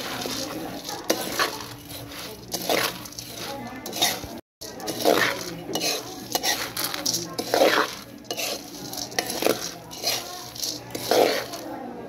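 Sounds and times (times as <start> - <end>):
metal spatula grating on pan: 0.0 - 11.7
coffee beans rattling in metal pan: 0.0 - 11.8.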